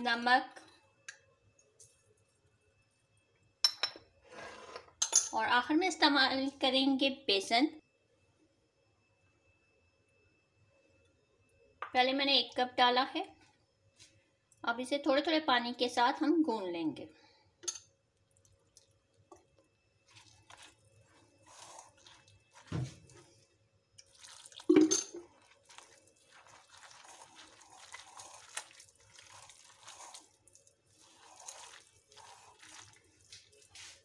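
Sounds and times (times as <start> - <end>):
wet squelching of batter mixing: 18.1 - 34.0
water splashing: 24.0 - 34.0.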